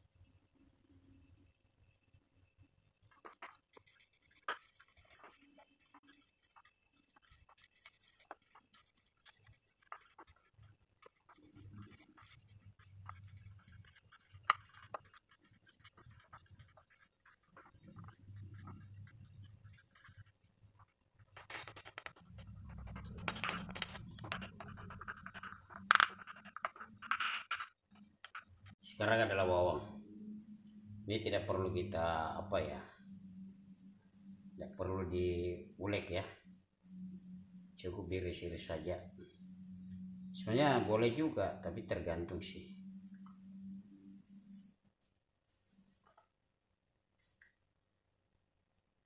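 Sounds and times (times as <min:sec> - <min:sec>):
scratching and rustling by hand: 0:03.0 - 0:28.8.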